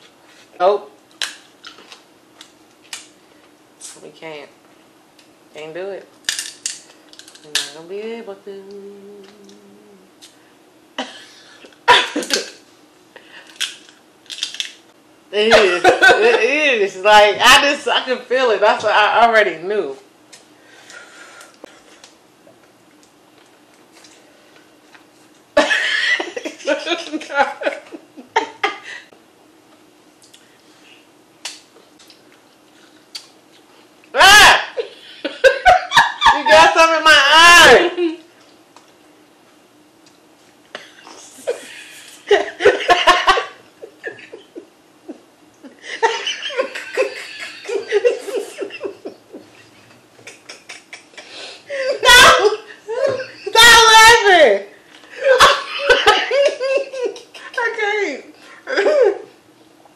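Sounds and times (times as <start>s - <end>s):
women laughing: 15.4s - 16.5s, 25.6s - 29.1s, 34.2s - 36.8s, 41.4s - 53.6s, 55.1s - 57.6s, 58.7s - 59.3s
chewing: 31.9s - 33.7s.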